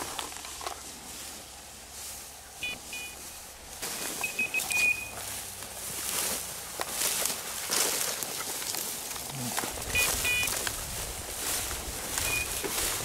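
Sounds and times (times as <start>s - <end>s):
dry grass rustling underfoot: 0.0s - 13.0s
short high electronic beeps: 2.6s - 3.4s, 4.0s - 5.2s, 9.9s - 10.5s, 12.2s - 12.7s.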